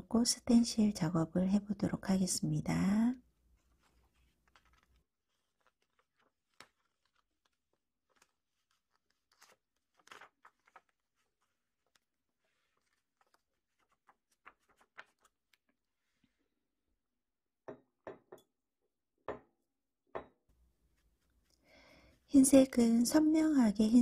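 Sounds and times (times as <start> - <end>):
brush dabbing paint: 3.5 - 9.8
plastic sheet crinkling: 3.5 - 15.8.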